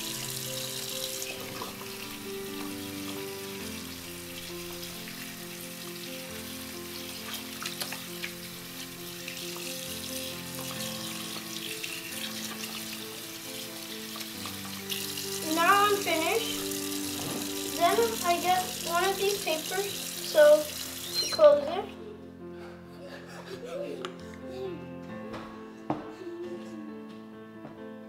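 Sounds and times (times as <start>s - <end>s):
faucet running into sink: 0.0s - 21.8s
music with held notes: 0.0s - 28.0s.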